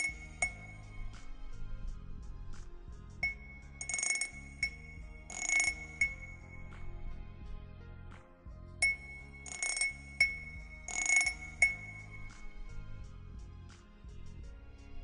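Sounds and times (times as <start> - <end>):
shimmering rattle: 0.0 - 1.2, 3.2 - 6.9, 8.8 - 12.8
background music: 0.0 - 15.0.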